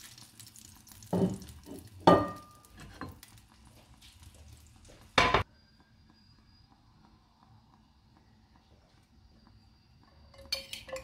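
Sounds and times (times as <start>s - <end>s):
faint frying sizzle: 0.0s - 11.0s
cookware clattering: 1.1s - 3.2s, 10.3s - 11.0s.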